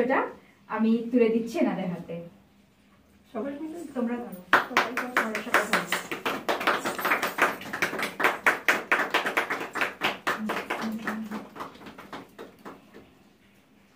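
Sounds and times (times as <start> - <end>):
people clapping: 4.5 - 13.2.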